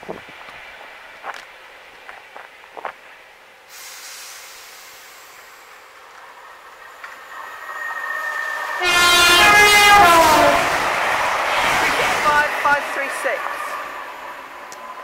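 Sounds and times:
train wheels rushing on rails: 0:00.0 - 0:15.0
train horn: 0:07.7 - 0:10.8.

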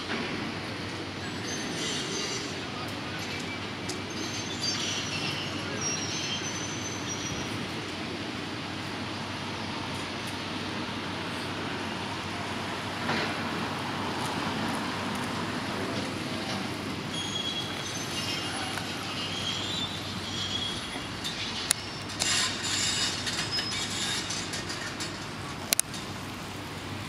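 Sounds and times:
construction machinery rumble: 0:00.0 - 0:27.0
high metallic squealing: 0:01.2 - 0:02.9, 0:04.0 - 0:07.6, 0:17.1 - 0:25.4
scraping and clatter: 0:17.8 - 0:26.2.

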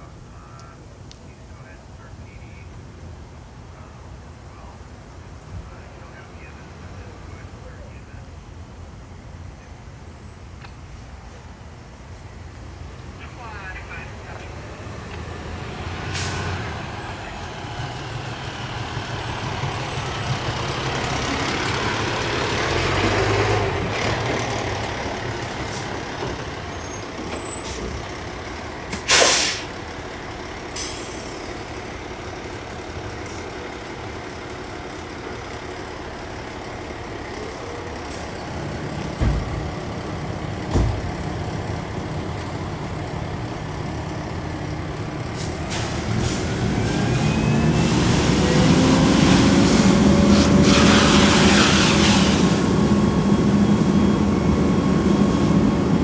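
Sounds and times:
diesel engine rumbling and idling: 0:00.0 - 0:56.0
air brakes hissing: 0:16.0 - 0:16.6, 0:26.7 - 0:28.0, 0:28.9 - 0:29.8, 0:30.8 - 0:31.8, 0:45.4 - 0:52.9.

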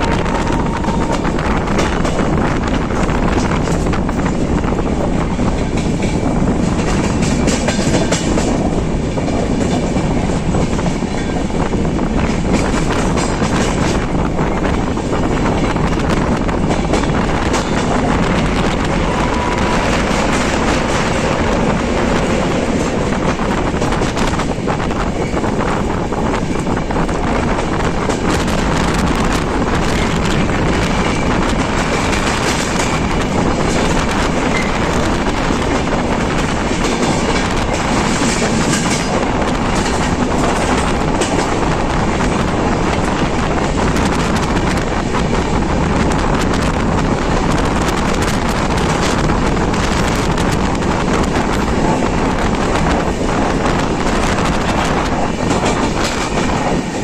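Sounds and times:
wheels clacking over rail joints: 0:00.0 - 0:25.4, 0:26.5 - 0:57.0
freight train rumbling past: 0:00.0 - 0:57.0.

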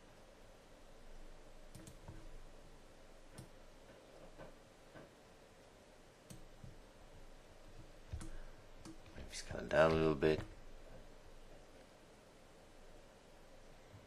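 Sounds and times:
mouse and keyboard clicks: 0:01.7 - 0:02.3.

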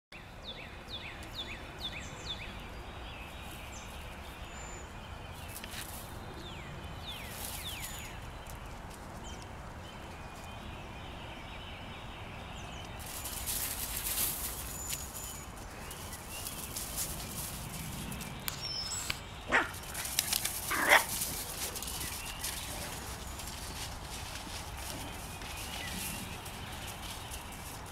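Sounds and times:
puppies playing: 0:13.0 - 0:27.9.

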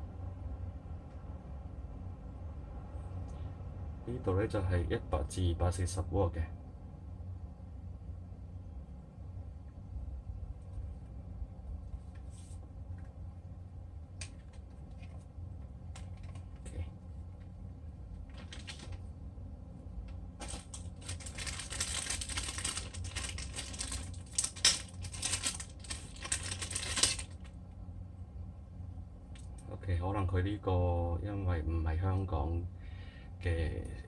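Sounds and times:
plastic bag crinkling: 0:18.2 - 0:19.0, 0:20.4 - 0:27.6.

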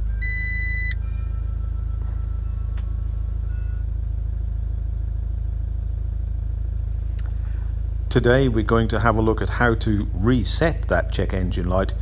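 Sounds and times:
dashboard warning beep: 0:00.0 - 0:03.9
van engine idling: 0:00.0 - 0:12.0.

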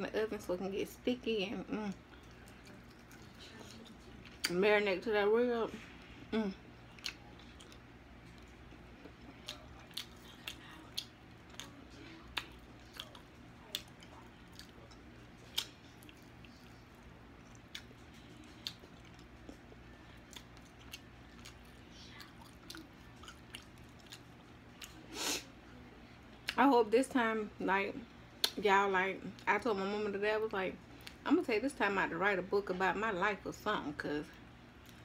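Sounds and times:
wet chewing and lip smacks: 0:01.9 - 0:04.6, 0:06.9 - 0:25.0.

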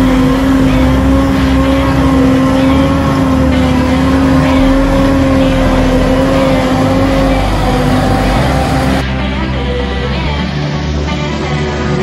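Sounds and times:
forage harvester droning: 0:00.0 - 0:09.0.

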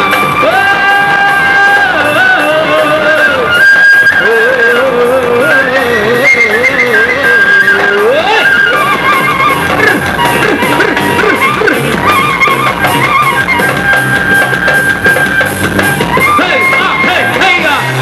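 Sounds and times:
guitar: 0:00.0 - 0:18.0
drum beat: 0:07.7 - 0:18.0.

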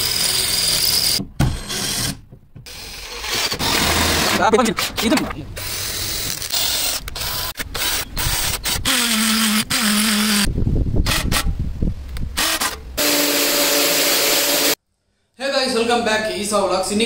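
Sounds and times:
cordless drill whining: 0:00.0 - 0:04.3, 0:12.4 - 0:14.8.

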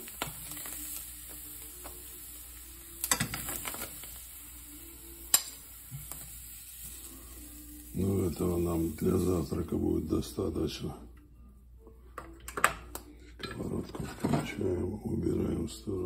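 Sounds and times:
cheese sizzling in a frying pan: 0:00.0 - 0:10.2
metal fork clicking on pan: 0:05.3 - 0:06.2.

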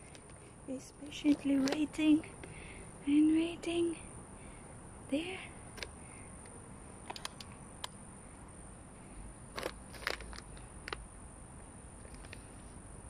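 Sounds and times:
faint clicks and crunches: 0:00.0 - 0:02.6, 0:05.8 - 0:08.0, 0:09.5 - 0:11.0, 0:12.0 - 0:12.6.

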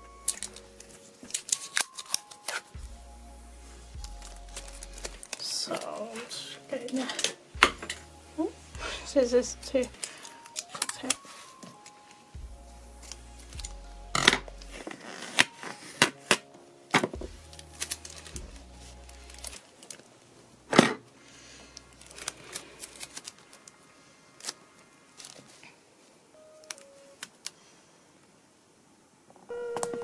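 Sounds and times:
light background music: 0:00.0 - 0:25.1, 0:26.3 - 0:27.3
tape handled on paper: 0:00.2 - 0:02.9, 0:03.8 - 0:06.3, 0:17.2 - 0:20.0
scissors snipping tape: 0:01.2 - 0:02.7.

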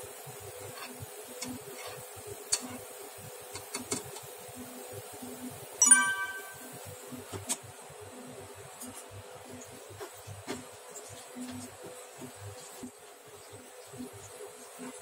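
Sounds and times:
broth bubbling in a pan: 0:08.5 - 0:15.0.

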